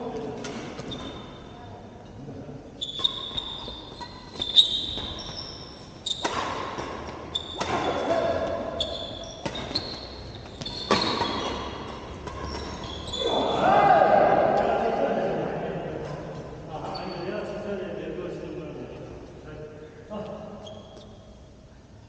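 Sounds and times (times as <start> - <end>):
sneaker squeaks on court floor: 0.8 - 1.6, 2.8 - 13.4, 20.6 - 21.5
racket striking shuttlecock: 6.2 - 8.6.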